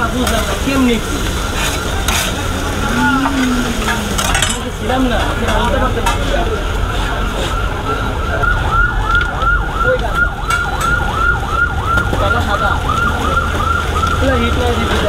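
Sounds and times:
food sizzling on a griddle: 0.0 - 4.2
electronic siren warbling: 7.1 - 15.0.

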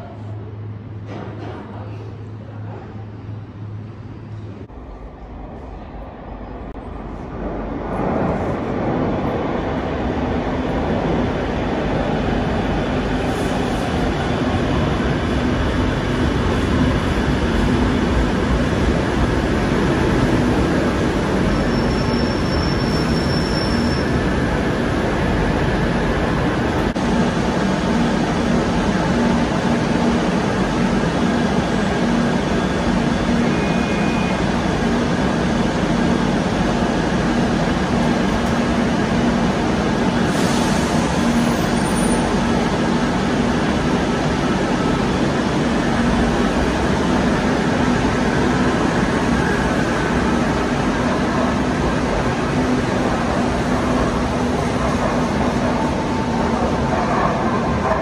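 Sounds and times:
train rumbling into station: 0.0 - 58.0
brake squeal: 21.6 - 24.2.

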